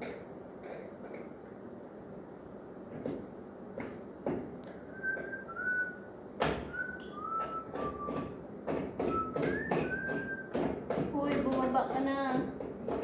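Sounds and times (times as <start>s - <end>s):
person whistling: 4.9s - 6.1s, 6.7s - 8.4s, 9.1s - 10.6s
clicks and knocks on light fixture: 7.4s - 13.0s.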